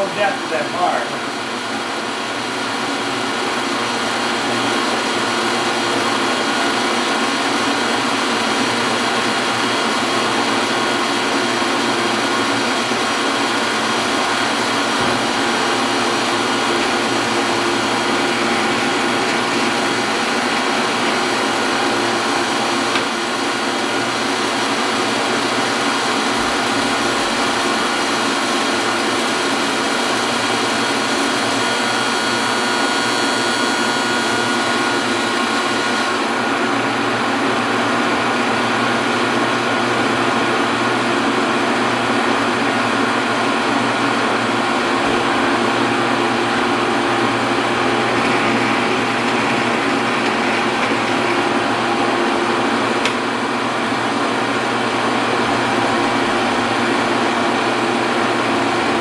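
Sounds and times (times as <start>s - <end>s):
metal lathe gear whine: 11.8s - 38.0s.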